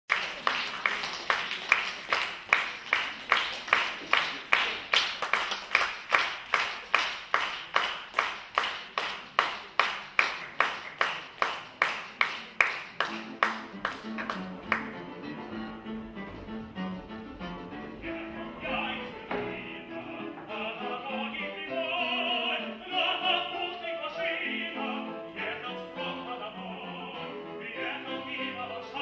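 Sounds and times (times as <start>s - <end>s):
rhythmic hand clapping: 0.1s - 15.1s.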